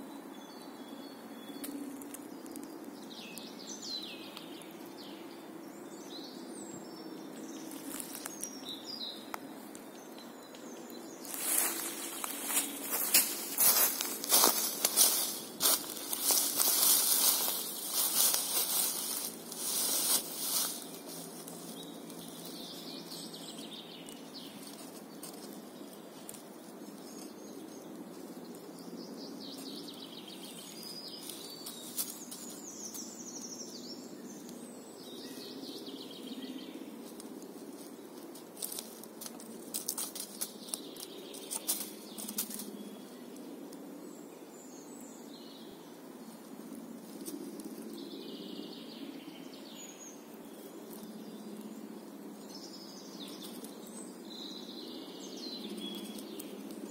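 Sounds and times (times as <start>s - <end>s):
birds chirping: 0.0s - 56.9s.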